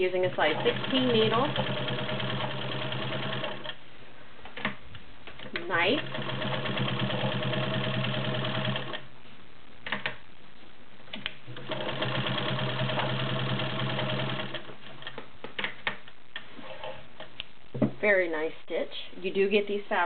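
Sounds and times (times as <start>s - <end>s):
sewing machine stitching: 0.1s - 3.8s, 5.6s - 9.0s, 11.5s - 14.7s.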